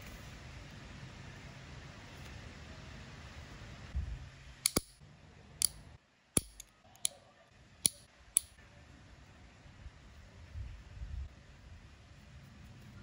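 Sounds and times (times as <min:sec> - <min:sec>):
nail clipper clicks: 0:04.6 - 0:05.0, 0:06.4 - 0:07.2, 0:07.9 - 0:08.5.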